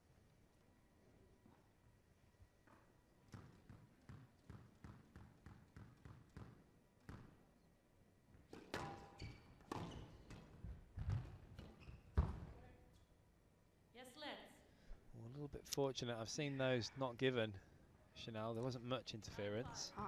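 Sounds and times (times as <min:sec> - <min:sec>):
squash ball bouncing on floor: 0:02.6 - 0:07.4, 0:08.5 - 0:12.6
ball cracking off racket and walls: 0:08.4 - 0:12.6
shoes squeaking on wooden floor: 0:09.0 - 0:12.5.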